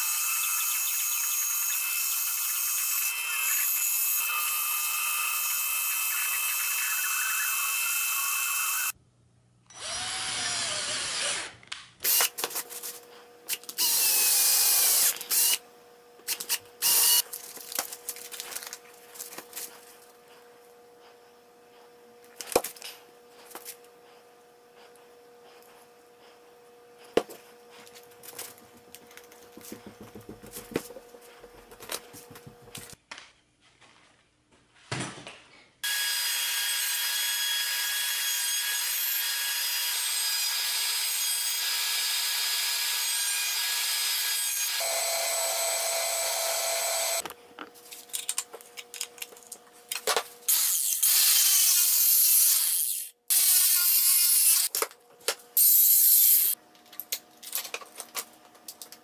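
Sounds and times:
angle grinder cutting metal: 0.0s - 9.0s, 35.8s - 47.2s, 50.5s - 54.7s, 55.6s - 56.6s
router running: 9.7s - 11.5s, 13.8s - 15.6s, 35.8s - 47.3s.

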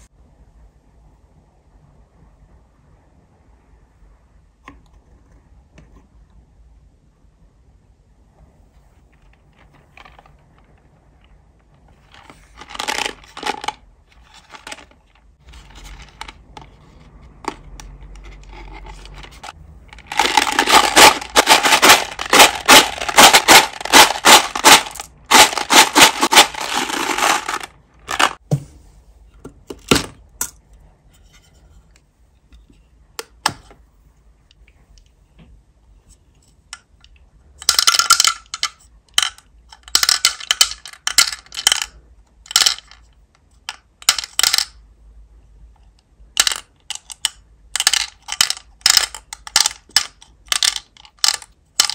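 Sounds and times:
candies rattling in paper box: 9.2s - 10.7s, 12.0s - 16.4s, 18.4s - 28.4s, 47.8s - 51.9s.

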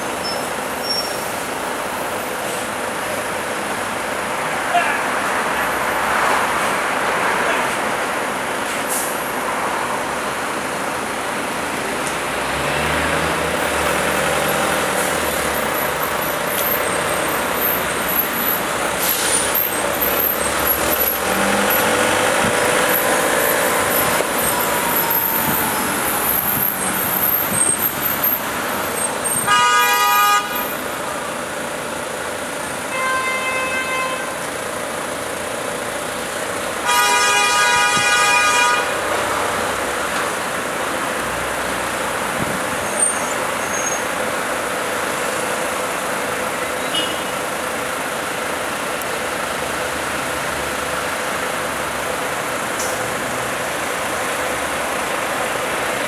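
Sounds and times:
street traffic: 0.0s - 56.0s
car horn: 29.2s - 30.8s, 32.9s - 34.4s, 36.8s - 39.0s, 46.8s - 47.3s.

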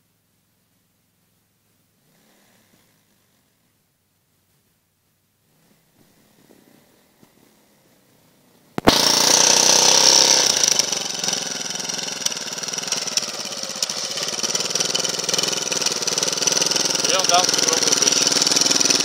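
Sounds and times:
motorcycle engine running: 8.8s - 19.0s.

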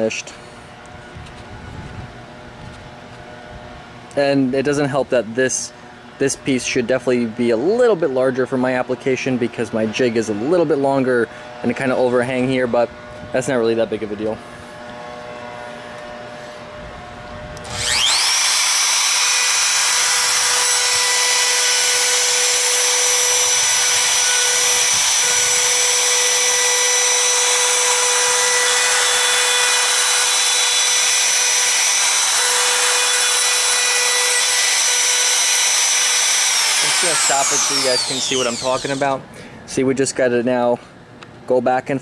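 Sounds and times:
handheld router whining: 12.4s - 39.2s.

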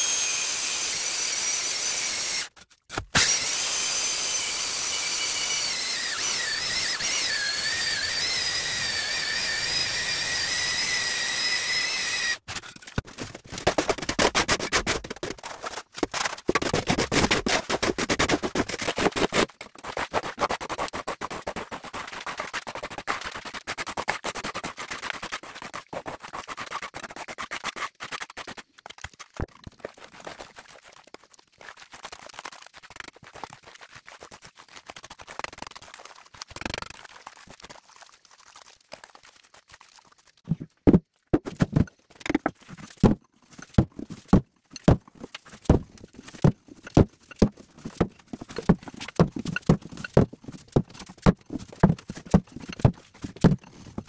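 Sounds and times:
hand tool knocking on stone: 46.4s - 53.6s.

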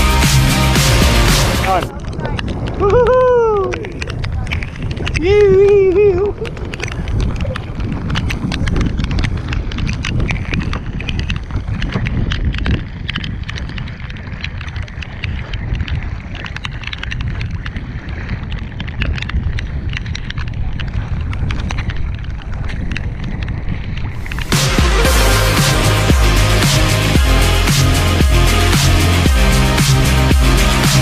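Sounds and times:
electronic music: 0.0s - 1.9s, 24.2s - 31.0s
wind buffeting microphone: 1.6s - 30.9s
water sloshing along kayak hull: 6.1s - 24.5s.

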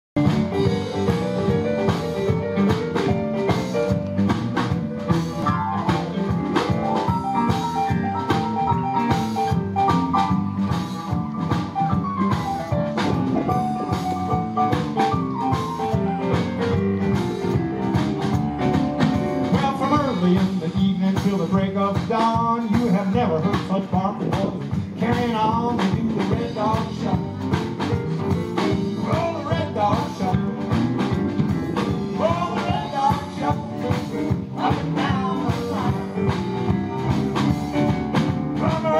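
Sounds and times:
melodic lead line: 0.2s - 23.5s
drum kit: 0.2s - 38.9s
electric bass: 0.2s - 38.9s
electric guitar: 0.2s - 38.9s
stage piano: 0.2s - 38.9s.

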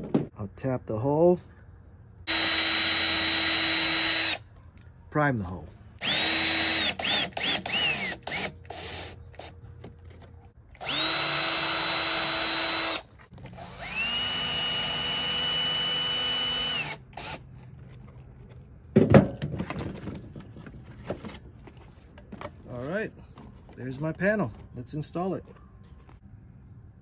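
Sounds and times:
cordless drill driving screws: 2.3s - 4.4s, 6.0s - 9.5s, 10.8s - 17.4s.

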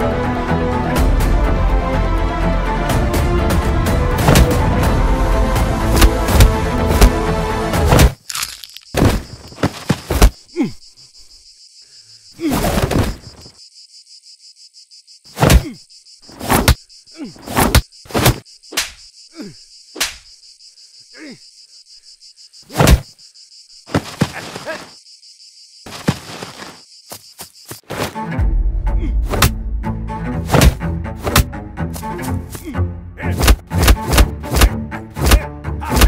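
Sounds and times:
insect drone: 4.0s - 31.2s
punch hits: 6.0s - 7.1s, 29.2s - 29.6s, 30.5s - 31.5s, 33.4s - 36.0s.

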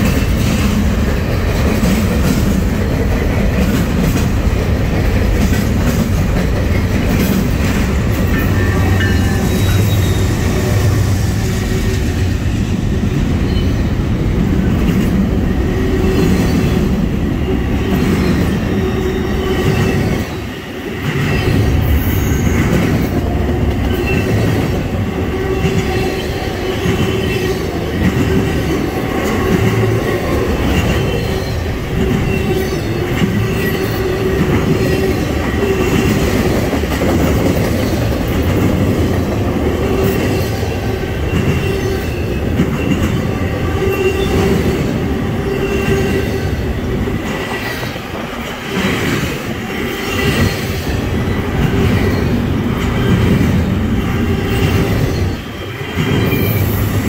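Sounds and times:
freight train wheels rumbling on rail: 0.0s - 57.0s
ringing whine of wheels: 8.2s - 12.3s.

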